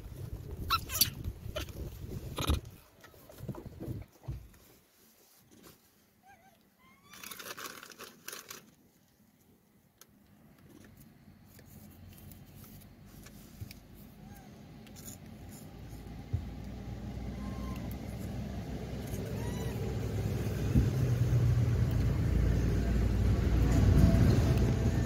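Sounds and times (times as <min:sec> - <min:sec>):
rustling crinkling burst: 0:07.1 - 0:09.2
road vehicle hum approaching: 0:10.8 - 0:25.0.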